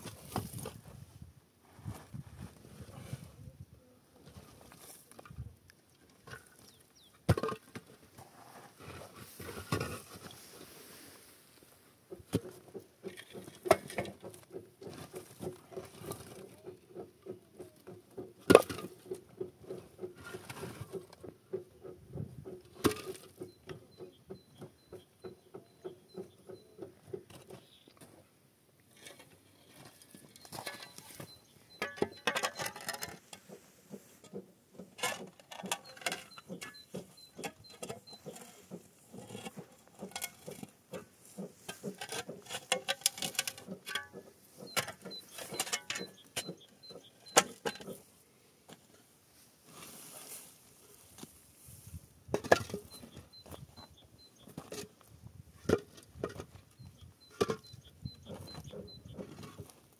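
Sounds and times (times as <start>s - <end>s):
rubble clattering and knocking: 0.0s - 1.0s, 6.1s - 10.4s, 12.0s - 28.2s, 28.9s - 48.1s, 52.3s - 59.9s
shovel moving rubble: 28.9s - 46.6s.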